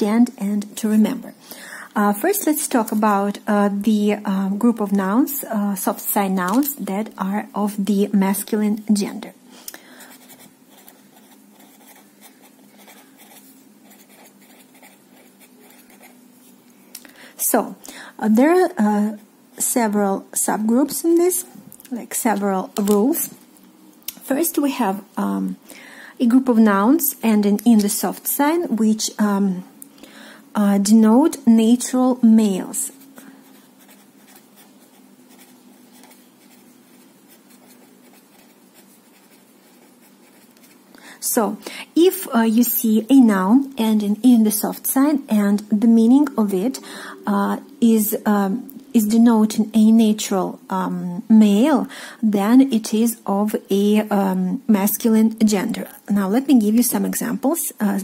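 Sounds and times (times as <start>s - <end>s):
felt-tip pen scratching paper: 10.2s - 16.2s, 33.5s - 40.8s.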